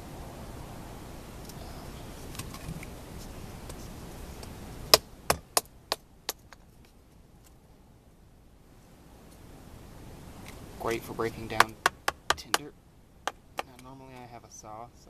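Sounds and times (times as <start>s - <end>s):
knife chopping wood: 4.9s - 6.5s, 11.5s - 12.7s.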